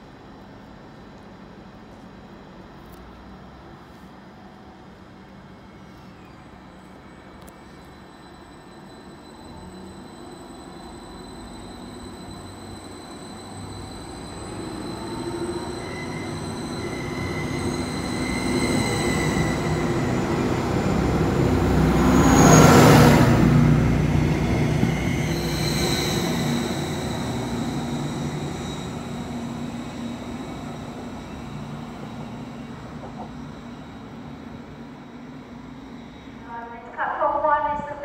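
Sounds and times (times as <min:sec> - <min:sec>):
high steady whining tones: 0:06.4 - 0:38.0
train passing rumble: 0:09.3 - 0:38.0.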